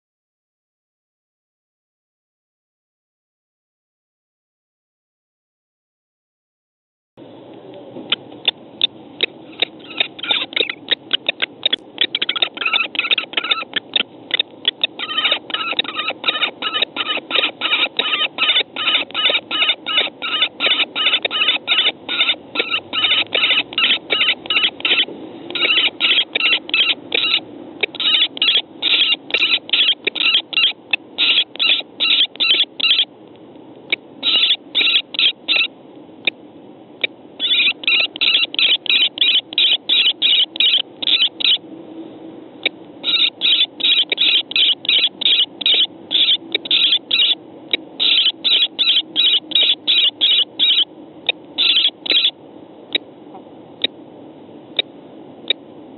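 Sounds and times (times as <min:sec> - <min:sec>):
kestrels calling shrill kee notes: 0:08.4 - 0:33.1, 0:33.9 - 0:36.4, 0:37.0 - 0:41.6, 0:42.6 - 0:53.0.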